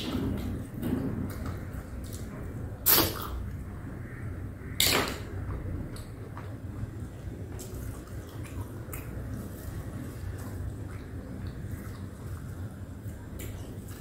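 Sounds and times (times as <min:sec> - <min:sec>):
chewing smacks and clicks: 0:07.5 - 0:14.0.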